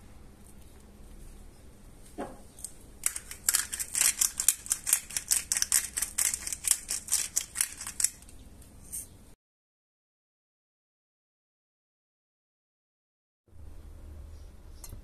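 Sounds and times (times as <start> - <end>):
spice grinder crunching: 3.0 - 8.4.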